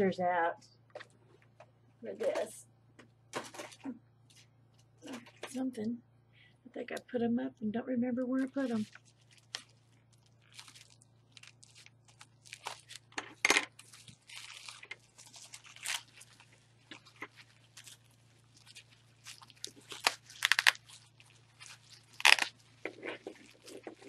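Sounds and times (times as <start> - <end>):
bubble wrap crinkling: 8.2 - 24.0
scissors snipping plastic: 19.9 - 20.8.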